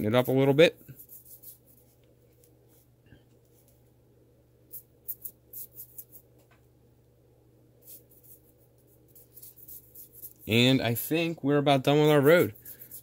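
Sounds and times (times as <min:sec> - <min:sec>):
paintbrush scratchy strokes: 0:00.0 - 0:03.8, 0:04.7 - 0:06.3, 0:07.8 - 0:11.1, 0:11.9 - 0:13.0
low room hum: 0:00.0 - 0:13.0.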